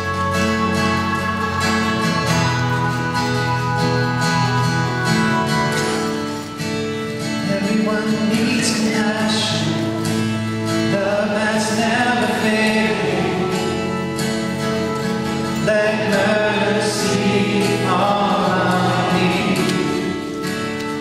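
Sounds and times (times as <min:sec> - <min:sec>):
keyboard and band backing: 0:00.0 - 0:21.0
strummed acoustic guitar: 0:00.0 - 0:21.0
voices singing: 0:07.4 - 0:14.6, 0:15.4 - 0:21.0.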